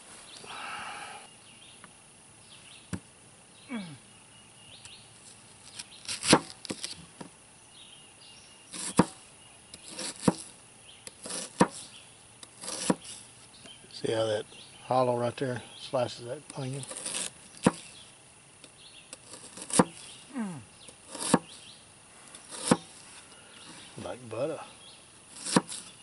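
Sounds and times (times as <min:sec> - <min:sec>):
knife chopping on cutting board: 0:12.6 - 0:13.0, 0:19.3 - 0:20.0, 0:21.1 - 0:21.5, 0:22.5 - 0:22.9, 0:25.4 - 0:25.8.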